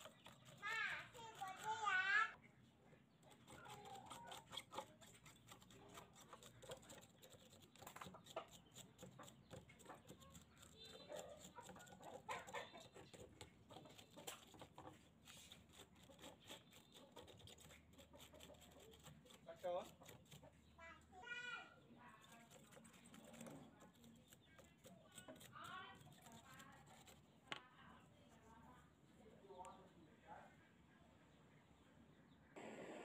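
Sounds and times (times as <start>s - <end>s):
scraping and ticking on metal: 3.2s - 20.6s, 22.0s - 27.6s.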